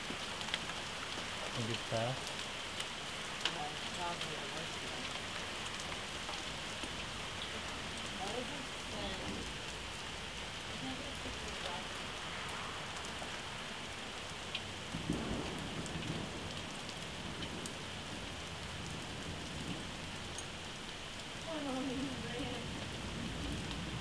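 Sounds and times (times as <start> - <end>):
hail ticking on surfaces: 0.0 - 24.0
heavy rain pouring: 0.0 - 24.0.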